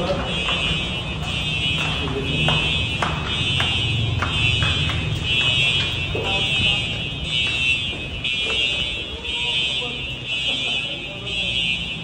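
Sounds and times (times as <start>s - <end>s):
footsteps on stairs: 0.0s - 9.1s
fire alarm ringing: 0.0s - 12.0s.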